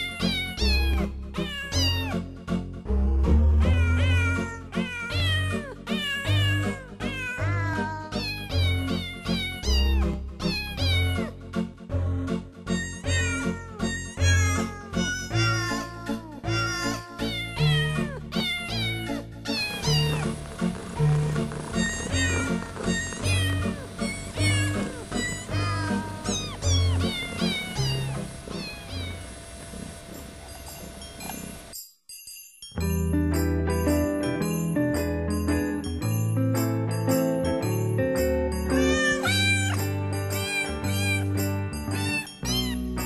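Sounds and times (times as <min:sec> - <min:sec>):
cat meows as melody: 0:00.0 - 0:02.2, 0:03.7 - 0:11.3, 0:12.7 - 0:20.3, 0:21.0 - 0:29.3, 0:38.7 - 0:43.0.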